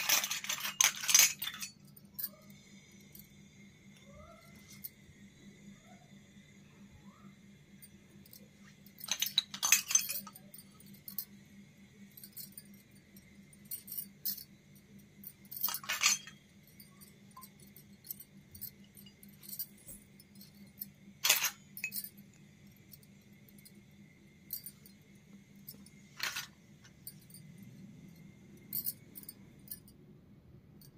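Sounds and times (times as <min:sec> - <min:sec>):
metal toy pots clinking: 0:00.0 - 0:02.5, 0:08.3 - 0:11.3, 0:15.2 - 0:20.1, 0:20.8 - 0:22.2, 0:25.7 - 0:27.4
faint steady hum: 0:00.0 - 0:30.9.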